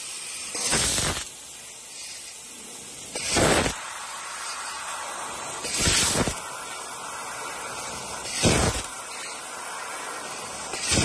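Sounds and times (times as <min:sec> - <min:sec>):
hiss of assist gas: 0:00.0 - 0:11.0
laser cutting blast: 0:00.5 - 0:01.3, 0:03.1 - 0:03.8, 0:05.6 - 0:06.5, 0:08.2 - 0:09.5, 0:10.5 - 0:11.0.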